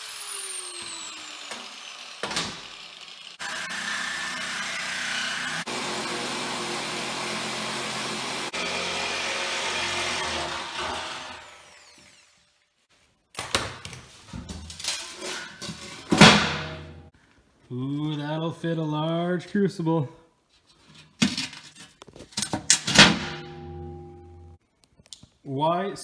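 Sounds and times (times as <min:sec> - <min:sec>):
angle grinder cutting steel: 0:00.0 - 0:12.6
metal clanks: 0:21.0 - 0:24.6
loud ringing metal clang: 0:22.9 - 0:24.6.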